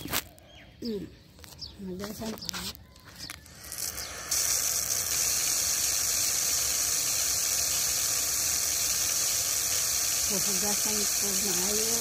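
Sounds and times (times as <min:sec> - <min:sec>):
water running from a hose: 0:03.2 - 0:12.0
water splashing on paving: 0:03.6 - 0:12.0.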